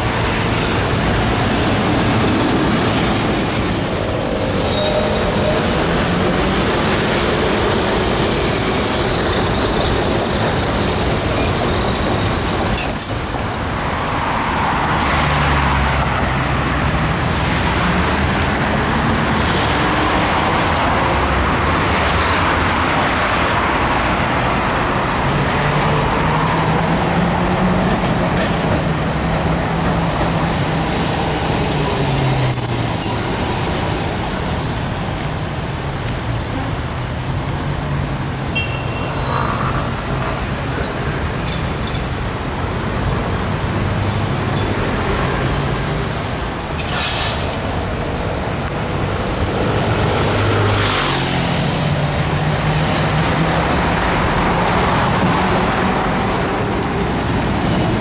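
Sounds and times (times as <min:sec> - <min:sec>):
tram wheels rumbling: 0:00.0 - 0:38.5, 0:39.1 - 0:58.0.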